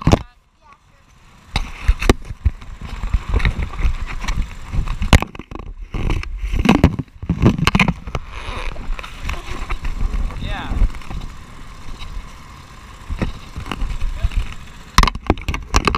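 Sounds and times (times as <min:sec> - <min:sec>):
camera bumping against helmet: 0:01.6 - 0:12.2.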